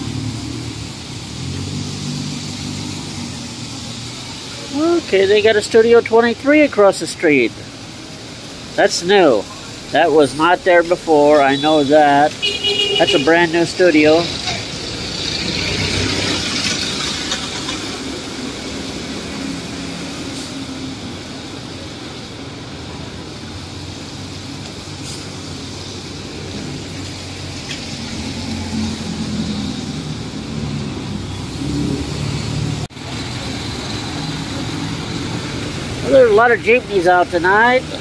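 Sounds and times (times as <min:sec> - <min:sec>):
tyres hissing on wet road: 0:00.0 - 0:38.0
vehicle engines running: 0:00.0 - 0:38.0
nearby vehicle engine: 0:13.1 - 0:38.0.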